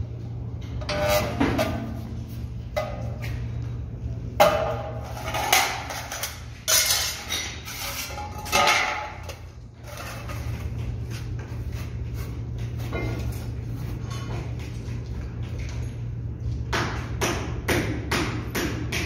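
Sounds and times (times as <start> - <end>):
steady low hum: 0.0 - 19.0
metal clanking and clattering: 4.4 - 10.8.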